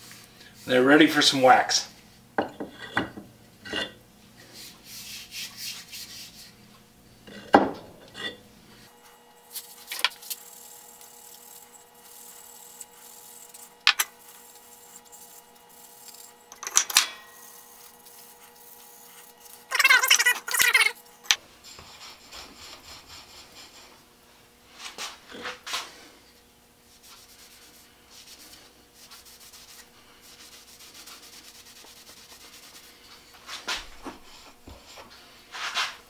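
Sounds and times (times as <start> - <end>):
wood knocking on workbench: 7.5 - 7.9
scraping on wooden handles: 11.2 - 24.0.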